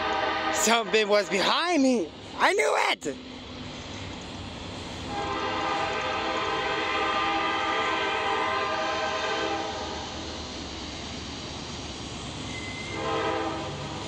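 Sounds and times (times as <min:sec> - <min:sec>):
locomotive air horn blast: 0:00.0 - 0:01.5, 0:05.0 - 0:10.0, 0:12.7 - 0:14.0
train rumbling: 0:00.0 - 0:14.0.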